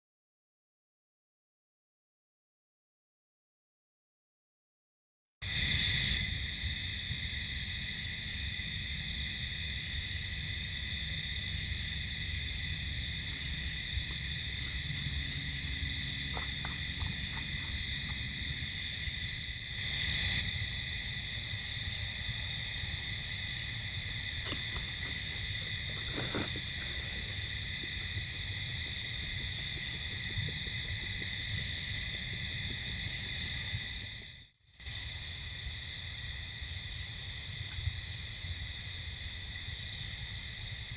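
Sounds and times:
crickets trilling: 5.4s - 40.9s
low steady rumble: 7.1s - 34.5s
faint crackles: 24.4s - 34.0s.

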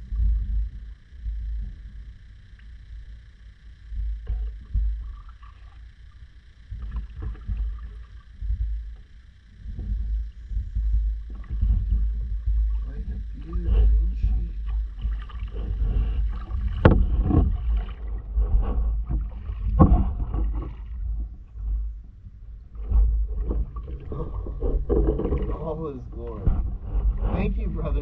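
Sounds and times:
low rumble: 0.0s - 28.0s
water moving along hull: 0.0s - 28.0s
paddle splashing in water: 11.2s - 21.2s.

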